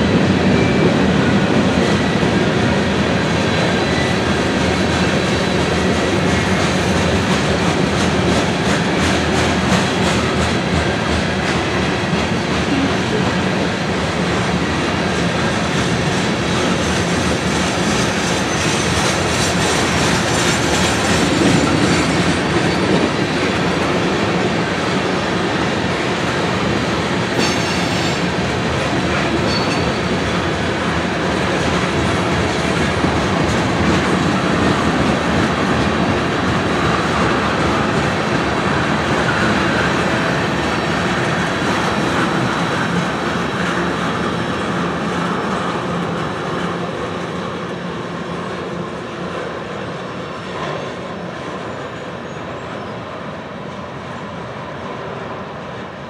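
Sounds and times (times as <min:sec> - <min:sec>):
train wheels clattering over rail joints: 0:15.2 - 0:47.5.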